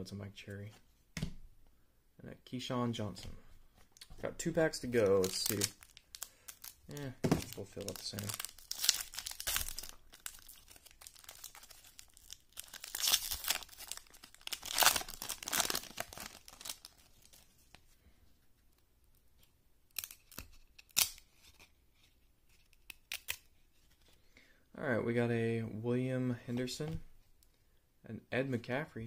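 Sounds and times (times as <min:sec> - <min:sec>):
foil wrapper tearing and crinkling: 0:05.0 - 0:17.4.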